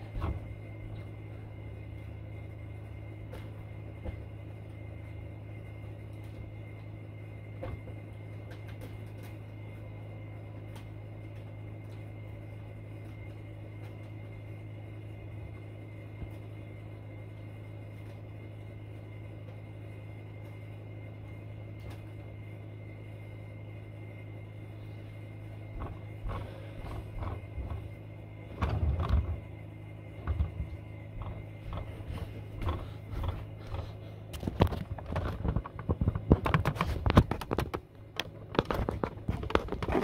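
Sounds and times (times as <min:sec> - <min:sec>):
faint high whine: 0:00.0 - 0:40.0
low electrical hum: 0:00.0 - 0:40.0.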